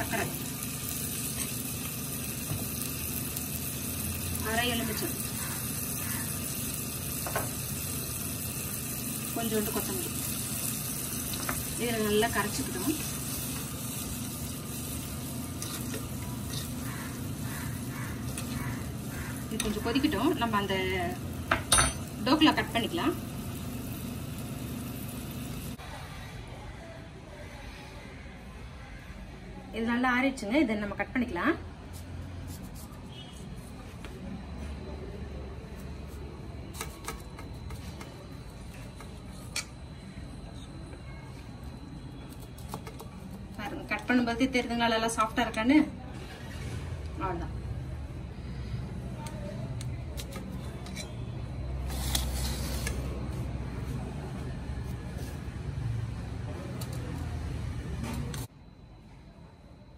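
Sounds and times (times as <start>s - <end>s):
chillies sizzling in a pan: 0.0s - 25.8s
steel spoon stirring: 15.0s - 20.1s, 50.6s - 53.0s.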